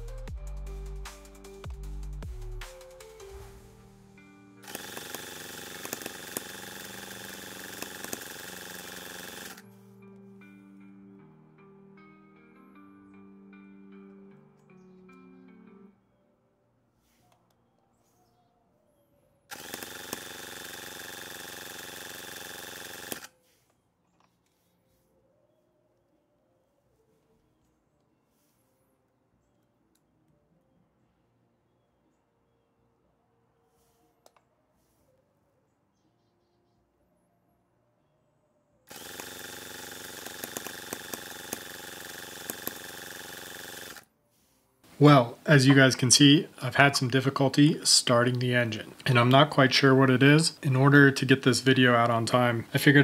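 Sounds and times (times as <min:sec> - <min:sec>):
electric starter whirring: 0:04.6 - 0:09.7, 0:19.5 - 0:23.4, 0:38.9 - 0:44.1.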